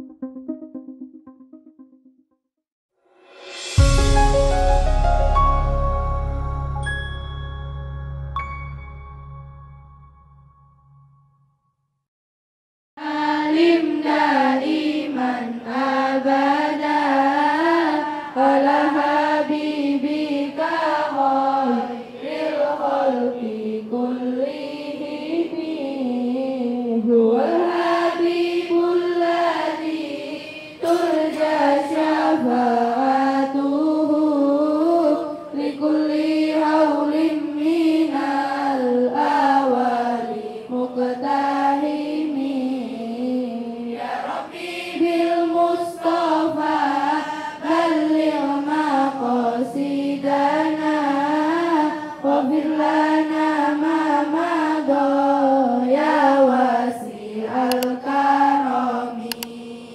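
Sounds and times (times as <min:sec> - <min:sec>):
girls chanting in unison: 0:13.0 - 0:59.9.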